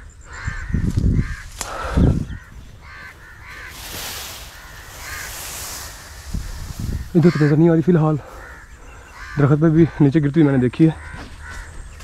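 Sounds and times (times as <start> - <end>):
crows cawing: 0.0 - 12.0
hissing rustle of leaves: 2.8 - 8.6.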